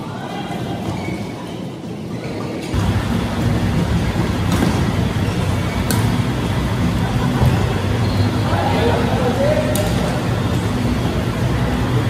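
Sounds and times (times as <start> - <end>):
low rumble with hum: 2.8 - 12.0
racket hitting shuttlecock: 4.4 - 5.0, 5.8 - 6.2.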